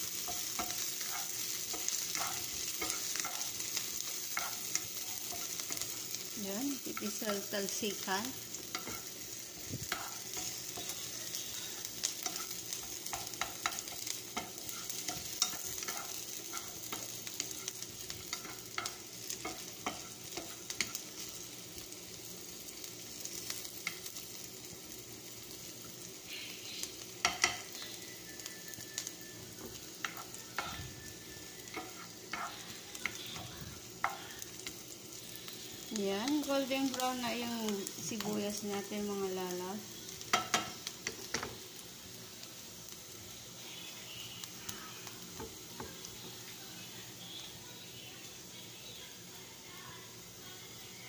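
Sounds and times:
onion sizzling in a frying pan: 0:00.0 - 0:51.0
wooden utensil scraping a pan: 0:00.3 - 0:03.5, 0:13.1 - 0:17.7.

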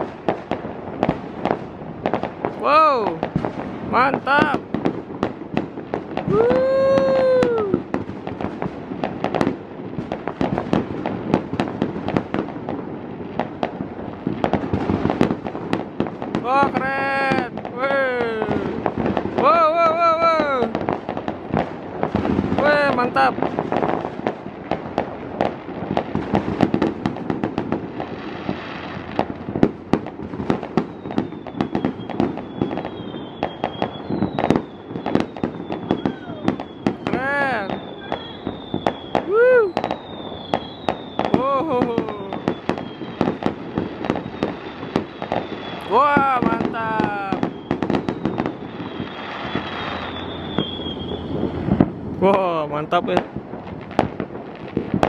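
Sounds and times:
fireworks banging and crackling: 0:00.0 - 0:55.0
faint high whistle: 0:30.9 - 0:37.0, 0:37.8 - 0:41.3, 0:47.5 - 0:51.5.

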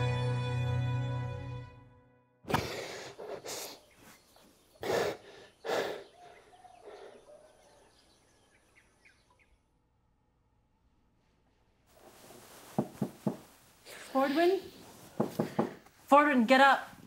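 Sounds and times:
faint birds chirping: 0:02.9 - 0:10.9.

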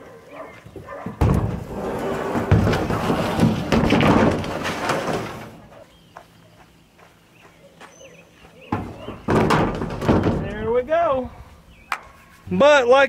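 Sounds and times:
plastic hull scraping across metal: 0:01.2 - 0:05.8.

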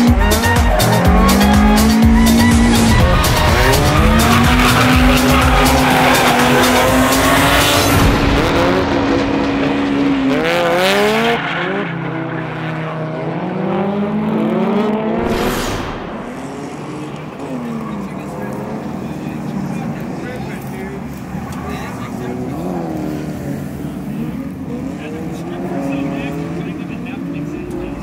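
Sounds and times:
car engine at high revs: 0:00.0 - 0:28.0
tyres squealing: 0:00.3 - 0:07.7.

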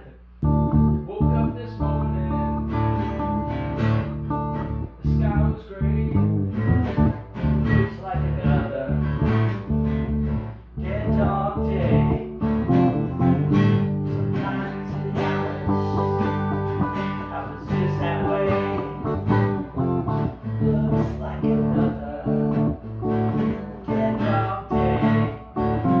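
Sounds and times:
person singing: 0:00.0 - 0:09.7, 0:10.8 - 0:26.0
electric guitar strumming blues chords: 0:00.0 - 0:26.0.

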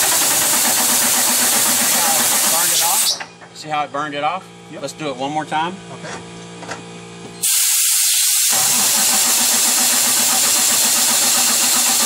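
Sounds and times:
compressed air hissing: 0:00.0 - 0:03.2, 0:07.4 - 0:12.0
diesel engine cranking and running: 0:00.0 - 0:03.4, 0:08.4 - 0:12.0.

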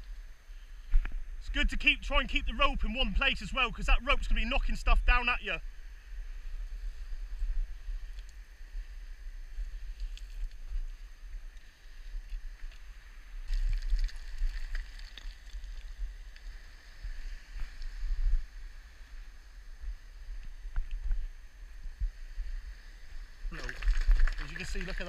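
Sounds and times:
scree and stones shifting underfoot: 0:09.8 - 0:18.5, 0:23.5 - 0:25.0.

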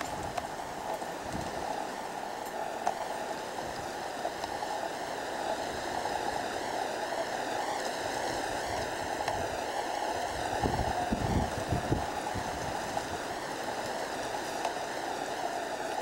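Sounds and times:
steady rushing noise: 0:00.0 - 0:16.0
faint clicks: 0:13.8 - 0:14.8.

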